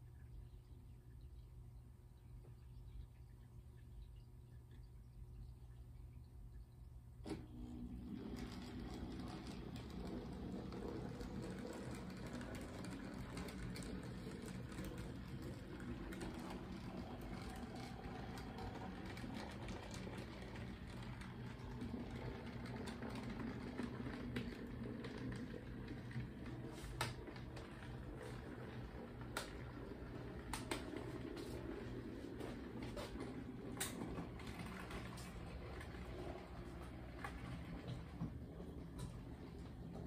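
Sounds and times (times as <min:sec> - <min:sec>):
model train motor whir: 0:08.1 - 0:26.2.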